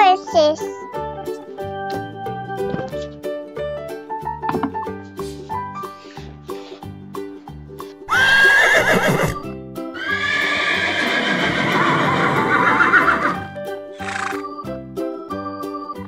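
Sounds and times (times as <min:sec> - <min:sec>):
background music with steady beat: 0:00.0 - 0:16.0
horse whinnying: 0:08.1 - 0:14.4.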